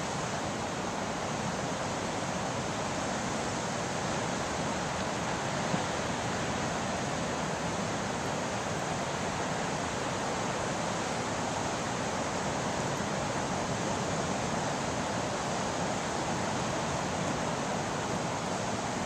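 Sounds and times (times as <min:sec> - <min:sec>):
ocean waves roaring: 0:00.0 - 0:19.0.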